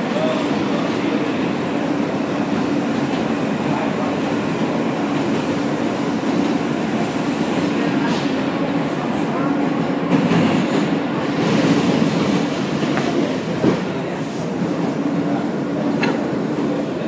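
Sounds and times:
passing train: 0.0s - 17.0s
subway car rumble: 0.0s - 17.0s.

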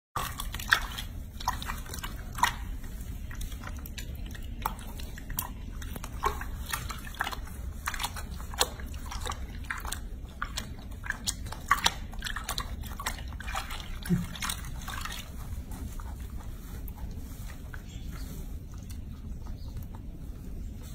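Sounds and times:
water splashing in a sink: 0.2s - 15.6s
steady low hum: 0.2s - 20.9s.

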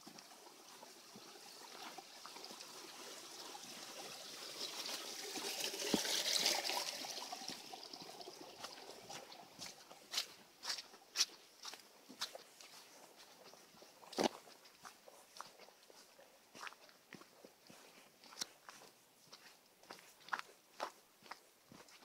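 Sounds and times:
small stream trickling: 0.0s - 22.0s
light footsteps on dirt: 8.6s - 22.0s.

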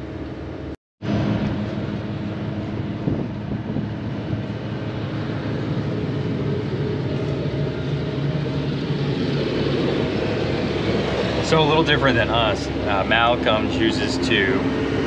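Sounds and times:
diesel engine drone: 0.0s - 15.0s
wind noise on microphone: 1.0s - 11.6s.

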